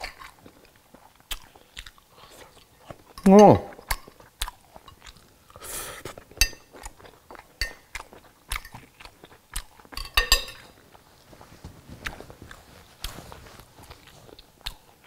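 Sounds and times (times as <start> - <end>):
person chewing crunchy food: 0.0 - 15.0
cutlery clinking on a plate: 6.4 - 6.7, 7.6 - 7.9, 10.0 - 10.8.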